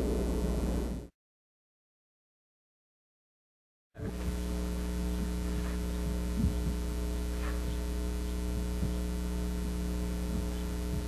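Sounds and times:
electrical mains hum: 0.0s - 1.1s, 4.0s - 11.0s.

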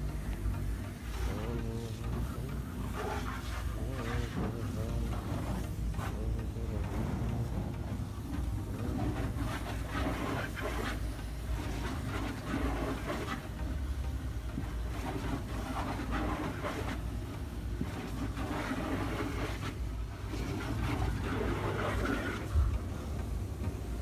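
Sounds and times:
pressure washer jet spraying water: 0.0s - 23.3s
pump humming: 0.0s - 24.0s.

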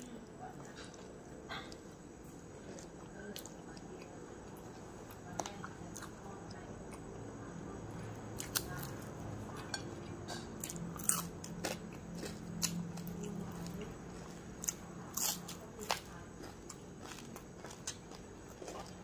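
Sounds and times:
person chewing: 8.3s - 19.0s.

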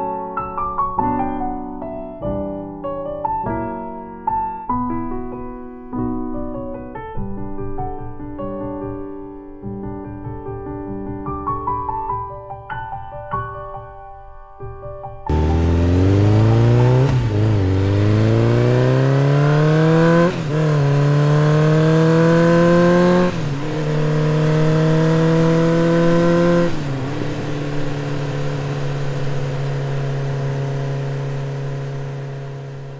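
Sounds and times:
motorcycle engine accelerating: 15.3s - 32.9s.

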